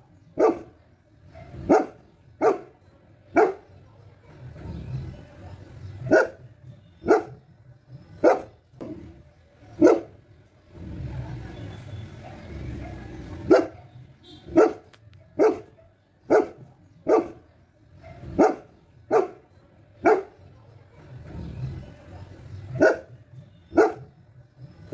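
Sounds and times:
dog barking: 0:00.3 - 0:04.7, 0:06.0 - 0:07.4, 0:08.2 - 0:08.6, 0:09.8 - 0:10.2, 0:11.2 - 0:21.4, 0:22.7 - 0:24.2.

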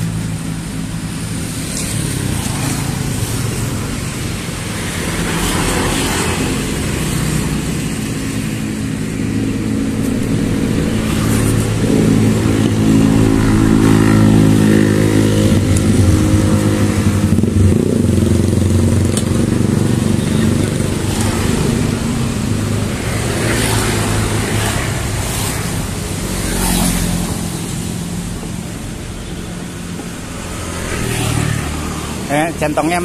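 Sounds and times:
motorcycle engine running: 0:00.0 - 0:26.4.

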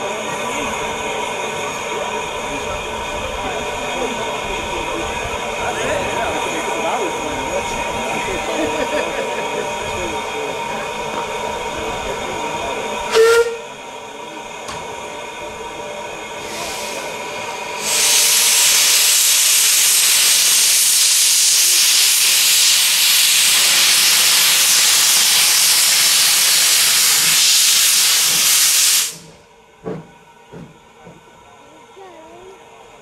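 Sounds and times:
steam locomotive hissing steam: 0:00.0 - 0:33.0
locomotive whistle: 0:13.1 - 0:13.8.

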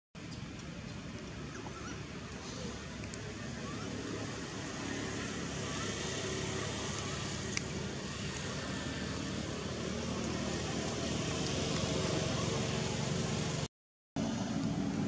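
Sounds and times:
distant vehicle engine rumble: 0:00.2 - 0:15.0.

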